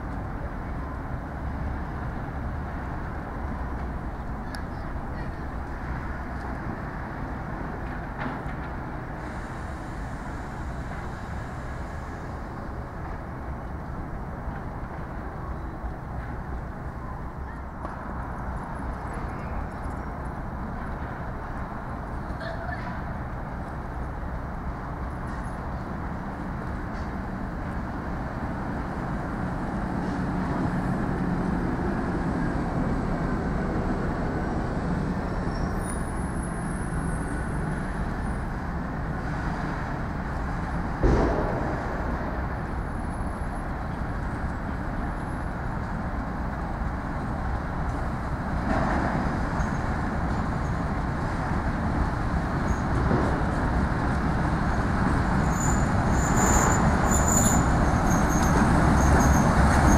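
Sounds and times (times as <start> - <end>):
diesel locomotive rumble: 0.0 - 59.9
wheels grinding on rail: 26.4 - 59.9
sharp clunk: 41.0 - 42.2.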